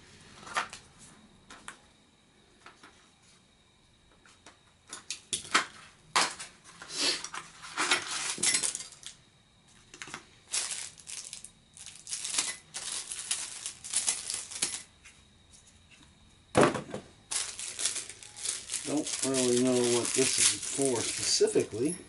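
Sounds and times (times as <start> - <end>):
packaging rustling: 10.5 - 14.9, 17.3 - 21.9.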